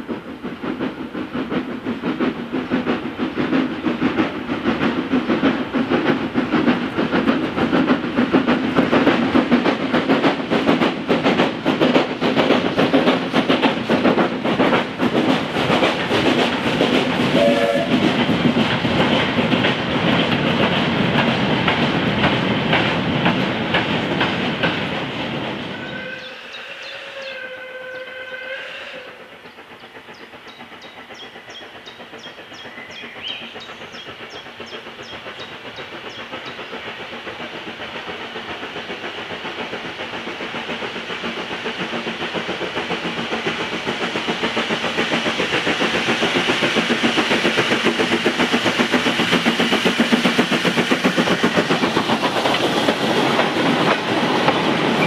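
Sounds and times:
train wheels clicking over rail joints: 0:00.0 - 0:55.0
distant steam whistle: 0:17.2 - 0:18.0, 0:25.7 - 0:29.4.

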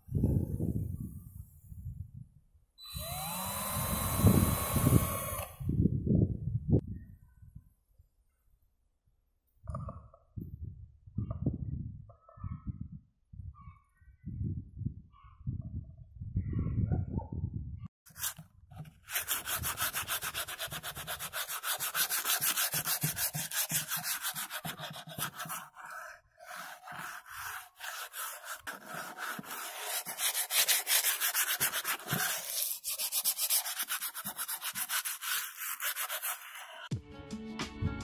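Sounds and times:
sandpaper rasping on wood: 0:19.0 - 0:36.9.

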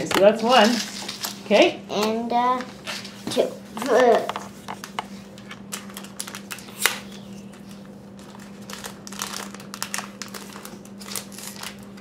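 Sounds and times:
foil wrapper crinkling and tearing: 0:05.6 - 0:12.0.

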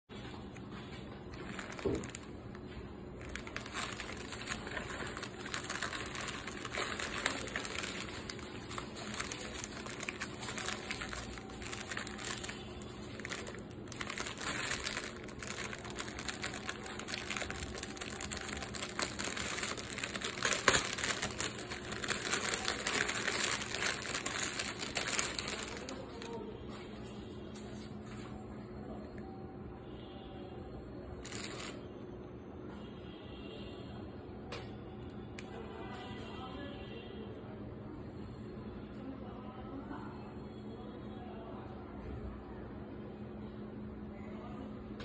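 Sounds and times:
plastic packaging crinkling: 0:00.3 - 0:26.4, 0:31.2 - 0:31.8.

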